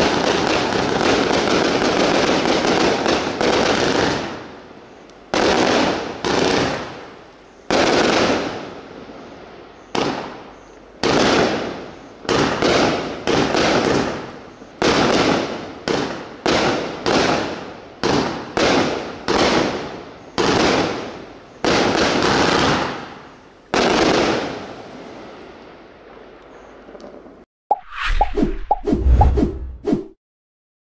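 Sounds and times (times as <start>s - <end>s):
firework bangs: 0.0s - 4.5s, 5.3s - 7.0s, 11.0s - 25.0s.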